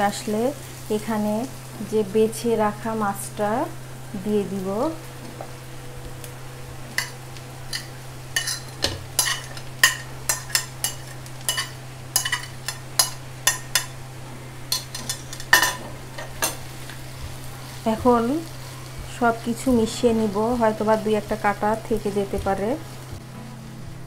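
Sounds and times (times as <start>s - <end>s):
spatula scraping on plate and pan: 6.9s - 14.0s.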